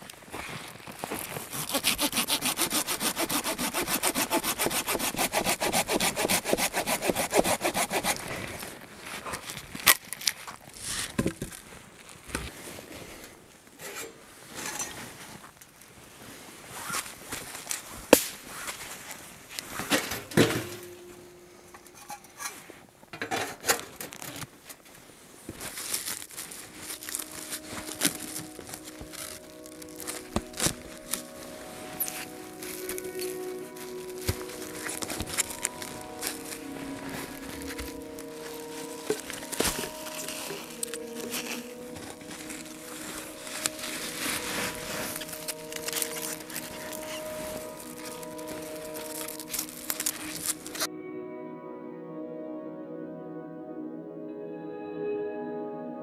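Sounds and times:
hand saw cutting wood: 0:01.2 - 0:08.6, 0:27.0 - 0:50.8.

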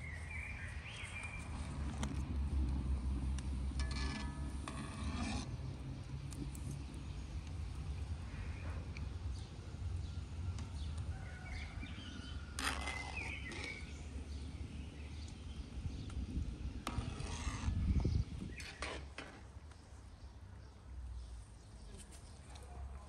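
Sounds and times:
metal skimmer scraping and tapping: 0:03.7 - 0:05.5.

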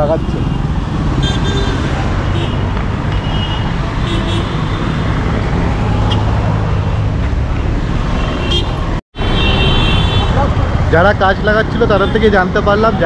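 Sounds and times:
car horn toots: 0:08.4 - 0:10.4.

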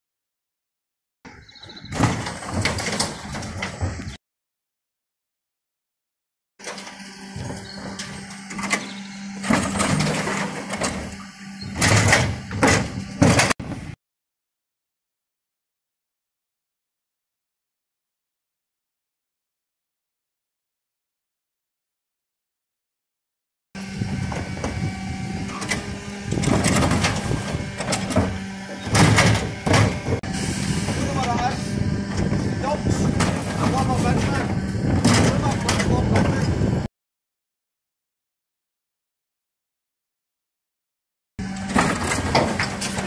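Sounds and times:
bin tipping bang: 0:01.9 - 0:03.8, 0:26.4 - 0:30.2, 0:35.0 - 0:36.3, 0:41.6 - 0:43.0
rubbish clattering into hopper: 0:01.9 - 0:04.1, 0:06.6 - 0:14.0, 0:25.5 - 0:32.3, 0:32.9 - 0:36.5, 0:41.4 - 0:43.0
bin lifter raising bin: 0:06.6 - 0:14.0, 0:23.8 - 0:36.8, 0:41.4 - 0:43.0
truck engine hum: 0:06.6 - 0:14.0, 0:23.8 - 0:36.9, 0:41.4 - 0:43.0
bin clattering against lifter: 0:25.6 - 0:30.2, 0:33.1 - 0:36.5, 0:41.4 - 0:43.0
loud knocks: 0:26.3 - 0:30.2.

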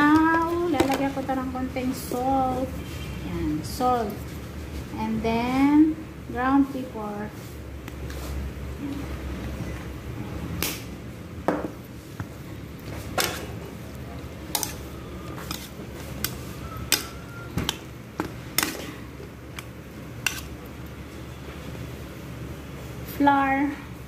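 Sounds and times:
metal spoon clinking in steel bowl: 0:14.5 - 0:14.8.

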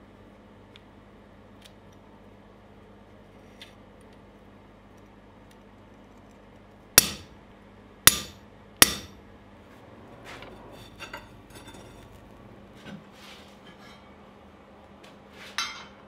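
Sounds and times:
hammer striking metal punch: 0:07.0 - 0:07.4, 0:08.1 - 0:09.2.

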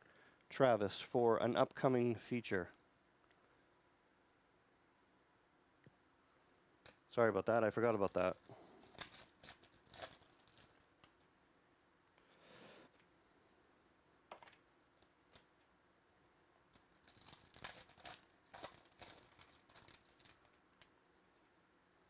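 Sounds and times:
foil wrapper crinkling and tearing: 0:07.8 - 0:11.2, 0:16.7 - 0:20.9
cards being handled: 0:07.8 - 0:11.3, 0:16.8 - 0:21.5.

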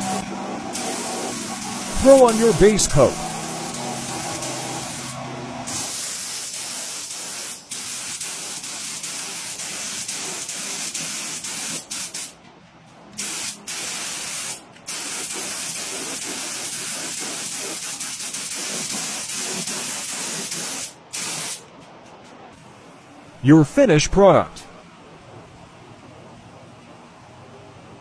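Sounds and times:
spray gun hissing: 0:00.8 - 0:05.1, 0:05.7 - 0:12.3, 0:13.2 - 0:21.6.

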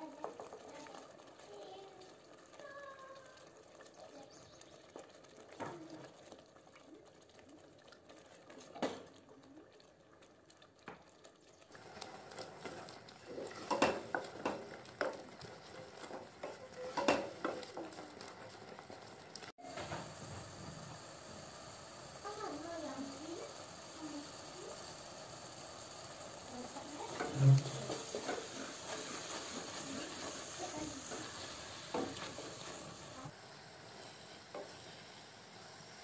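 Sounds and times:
wooden spoon stirring in metal pot: 0:00.0 - 0:19.7, 0:26.4 - 0:33.3.

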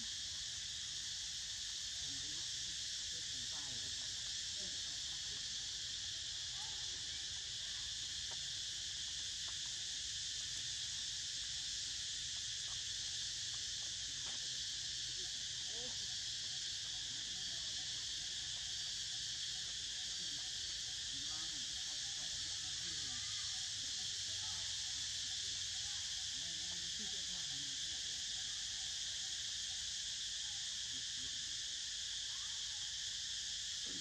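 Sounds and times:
high-pitched insect drone: 0:00.0 - 0:34.0.

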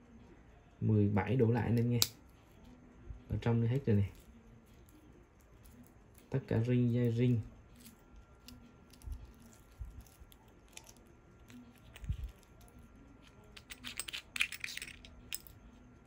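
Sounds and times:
wristwatch clicks and rattles: 0:07.0 - 0:15.6.

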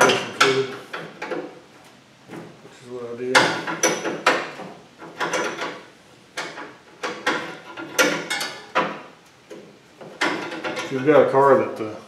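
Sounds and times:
wrench clinking and scraping on fitting: 0:03.4 - 0:11.2.

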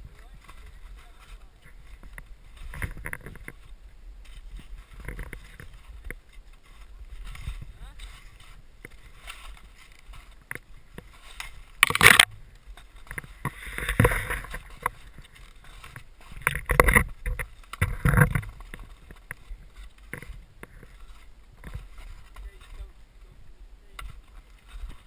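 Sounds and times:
skis swishing through powder snow: 0:00.0 - 0:02.8, 0:03.6 - 0:11.8.

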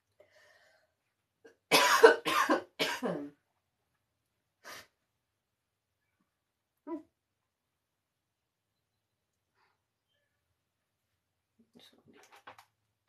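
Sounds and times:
person coughing: 0:01.7 - 0:03.3.

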